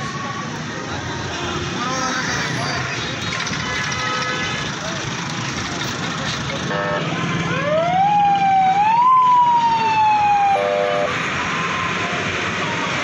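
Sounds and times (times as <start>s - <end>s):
street din: 0.0s - 13.0s
siren wailing: 7.5s - 12.4s
multi-tone horn blast: 10.6s - 11.1s.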